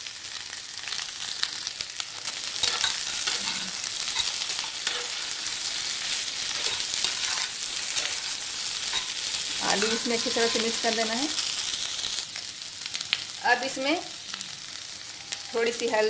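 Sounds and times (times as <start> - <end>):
oil sizzling in a pan: 0.0 - 16.0
spatula scraping a pan: 2.2 - 10.9.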